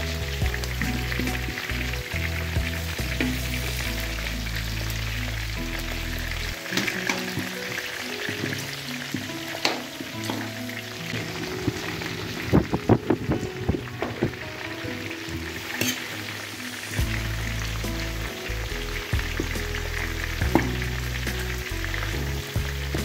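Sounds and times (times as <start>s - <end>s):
pork sizzling in wok: 0.0s - 23.0s
metal skimmer scraping pan: 15.4s - 16.3s.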